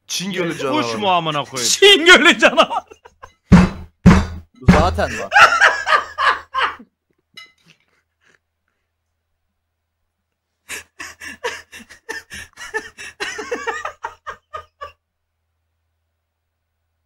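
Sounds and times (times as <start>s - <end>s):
man laughing hard: 1.8s - 3.4s, 5.0s - 6.9s, 10.7s - 15.0s.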